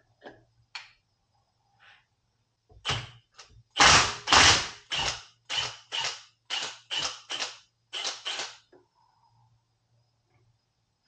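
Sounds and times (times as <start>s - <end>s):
impact driver bursts: 3.8s - 8.6s.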